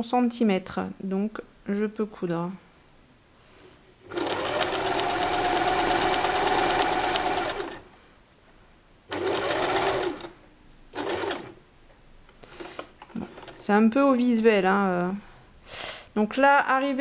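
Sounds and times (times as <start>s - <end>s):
sewing machine stitching: 4.0s - 7.9s, 9.1s - 11.6s.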